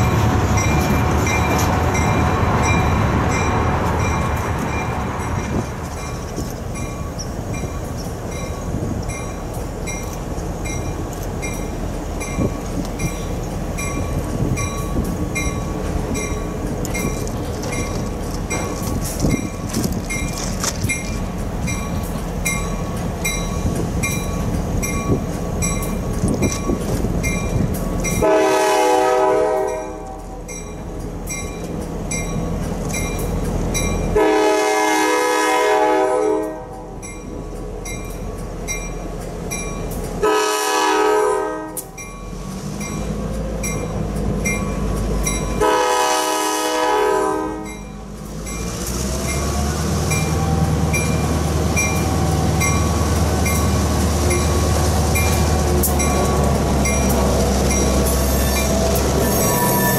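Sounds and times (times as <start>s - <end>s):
locomotive bell ringing: 0.0s - 28.6s, 29.6s - 34.4s, 36.1s - 40.2s, 41.7s - 46.2s, 47.6s - 59.9s
locomotive horn blasts: 28.2s - 30.2s, 34.2s - 36.8s, 40.2s - 42.0s, 45.6s - 47.7s.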